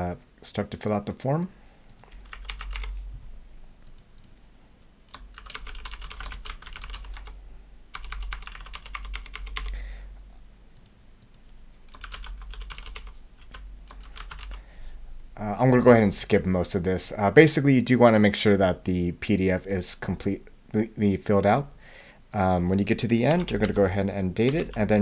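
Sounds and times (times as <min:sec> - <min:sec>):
typing on computer keyboard: 0:01.9 - 0:03.0, 0:05.1 - 0:07.4, 0:08.0 - 0:09.8, 0:10.8 - 0:14.6.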